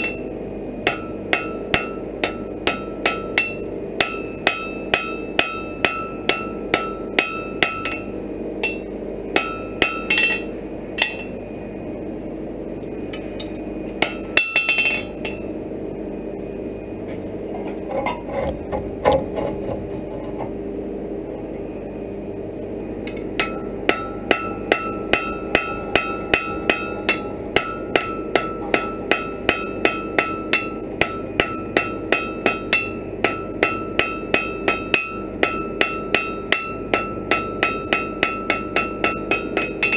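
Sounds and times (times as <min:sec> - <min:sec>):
hammer ringing on anvil: 0:00.0 - 0:11.5, 0:13.2 - 0:15.6, 0:23.1 - 0:39.9.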